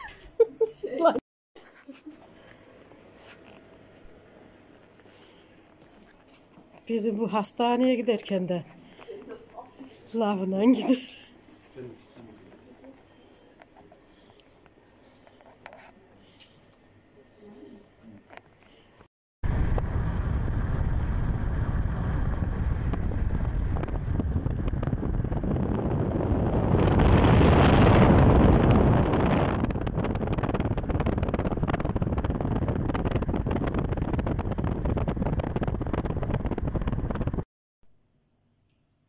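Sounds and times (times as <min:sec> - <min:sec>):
car road and wind noise: 0:19.5 - 0:37.4.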